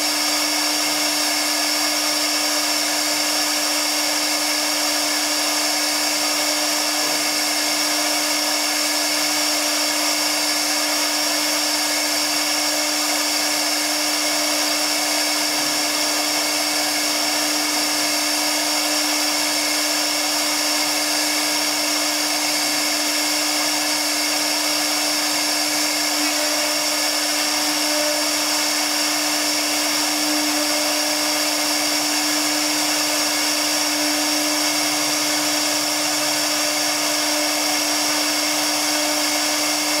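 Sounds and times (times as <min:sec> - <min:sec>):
router spindle whining: 0:00.0 - 0:40.0.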